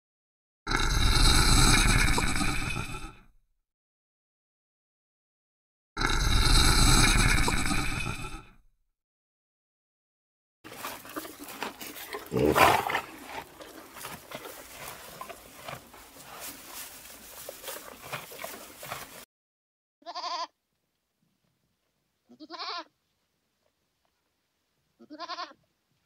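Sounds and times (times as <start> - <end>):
outdoor background noise: 10.7 - 19.2, 20.0 - 26.0
goat-like bleats: 20.0 - 20.6, 22.3 - 22.9, 25.0 - 25.6.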